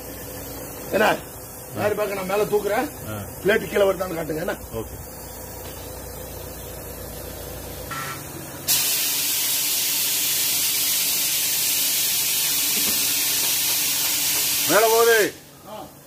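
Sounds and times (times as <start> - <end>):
compressed air hissing: 8.7 - 15.1.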